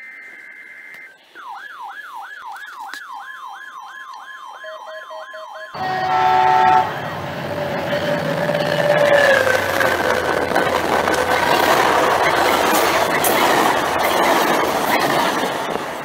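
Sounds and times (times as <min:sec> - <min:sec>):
electronic siren sweeping: 0:00.0 - 0:15.0
train horn chord: 0:05.8 - 0:09.4
diesel train passing: 0:05.8 - 0:16.0.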